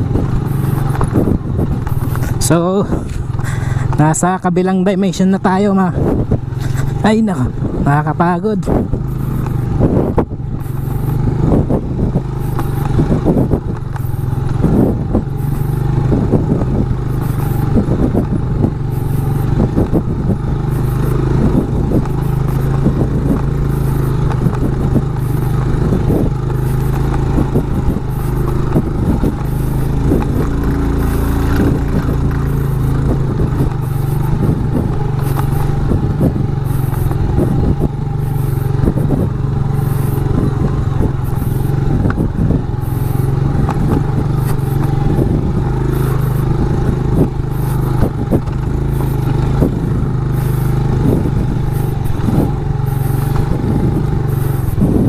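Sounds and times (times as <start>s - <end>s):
bike rattling over stones: 0.0s - 55.0s
motorcycle engine at low revs: 0.0s - 55.0s.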